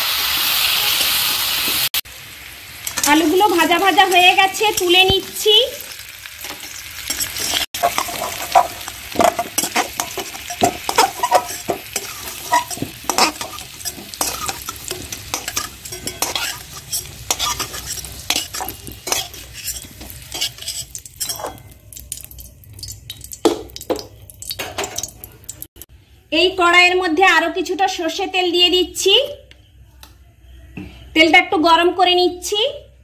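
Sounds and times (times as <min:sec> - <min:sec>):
potatoes sizzling in oil: 0:00.0 - 0:24.3
metal spatula scraping pan: 0:06.4 - 0:21.8.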